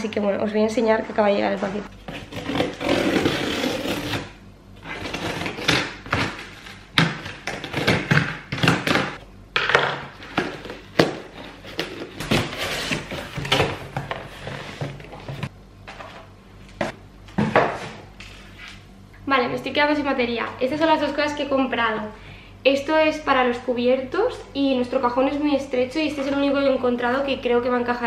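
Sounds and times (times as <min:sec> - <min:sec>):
scissors slitting packing tape: 0:02.2 - 0:09.2.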